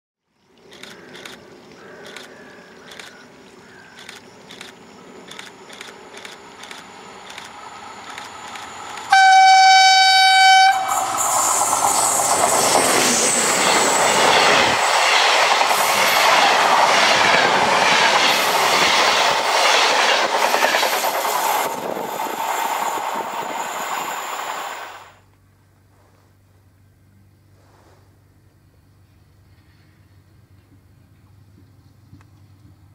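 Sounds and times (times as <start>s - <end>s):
rail clicks: 4.0s - 25.1s
train coaches rushing past: 4.1s - 25.2s
train horn: 9.1s - 11.2s.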